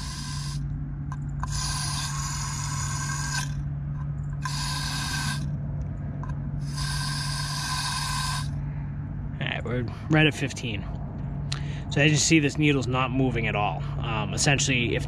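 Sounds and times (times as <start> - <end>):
water hissing through valve: 0.0 - 0.6, 4.4 - 5.4
low hum: 0.0 - 15.0.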